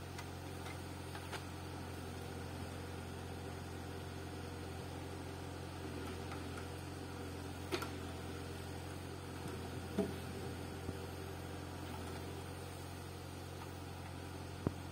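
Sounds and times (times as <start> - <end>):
tractor engine running: 0.0 - 14.9.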